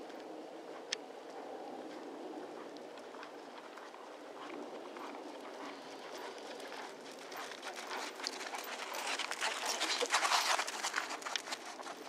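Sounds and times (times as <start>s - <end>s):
horse hoofbeats on sand: 2.4s - 12.0s.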